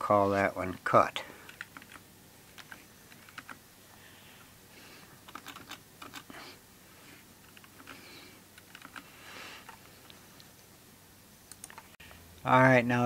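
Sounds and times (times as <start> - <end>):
typing on computer keyboard: 1.4 - 3.6, 5.2 - 6.3, 7.5 - 8.0, 8.6 - 9.8, 11.5 - 11.9.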